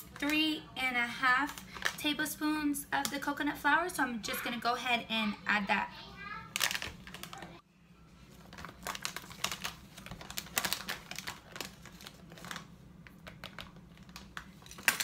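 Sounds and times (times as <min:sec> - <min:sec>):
plastic bag crinkling: 0:06.5 - 0:07.6, 0:08.3 - 0:15.0.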